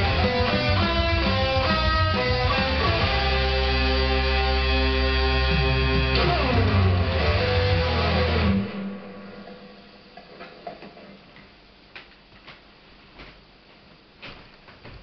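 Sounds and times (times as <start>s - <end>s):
electric guitar sliding notes: 0.0s - 10.4s.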